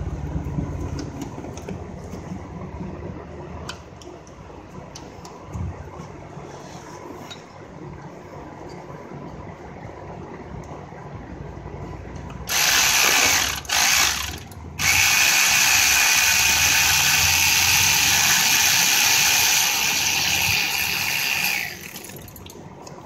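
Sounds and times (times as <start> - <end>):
electric ratchet running: 12.5 - 22.4.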